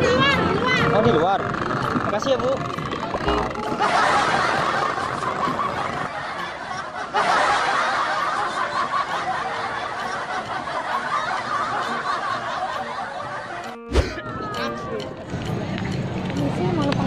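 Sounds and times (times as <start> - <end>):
group laughter: 3.5 - 14.7.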